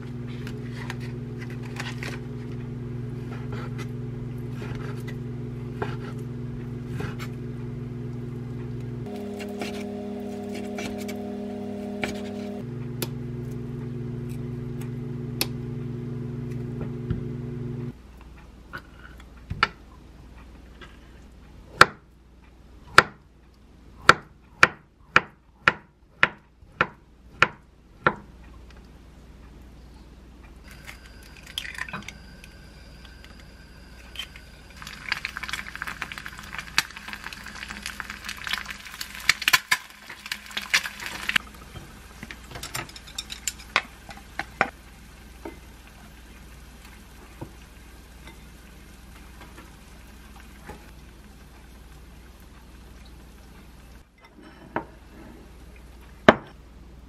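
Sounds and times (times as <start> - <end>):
egg sizzling in pan: 0.0 - 15.4, 30.7 - 54.0
steady low hum: 0.0 - 18.7, 29.1 - 38.5.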